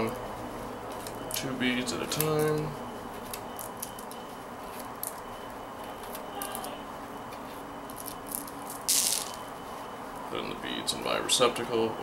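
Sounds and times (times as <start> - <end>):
plastic beads clicking: 8.0 - 9.4.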